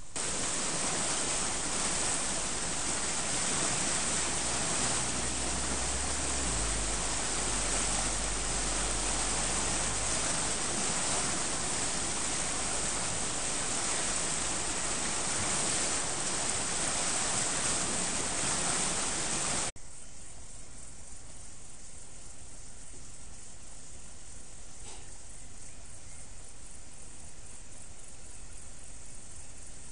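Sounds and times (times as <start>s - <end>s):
quiet hiss: 0.0s - 29.9s
floodwater rushing roar: 0.2s - 19.7s.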